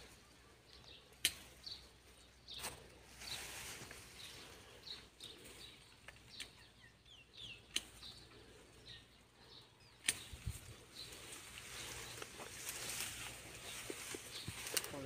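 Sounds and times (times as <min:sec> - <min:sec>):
small birds chirping: 0:00.0 - 0:15.0
sharp clicks: 0:07.7 - 0:08.1, 0:10.0 - 0:10.5.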